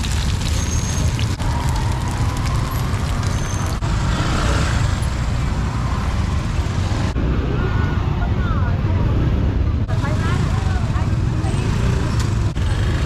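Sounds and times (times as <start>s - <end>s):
traffic rumble: 0.0s - 13.0s.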